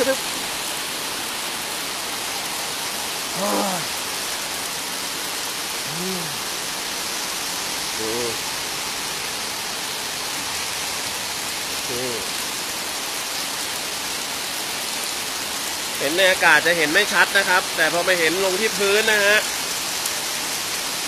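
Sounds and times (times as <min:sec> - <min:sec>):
steady rain falling: 0:00.0 - 0:21.0
person vocalizing: 0:03.3 - 0:04.0, 0:05.8 - 0:06.5, 0:08.0 - 0:08.4.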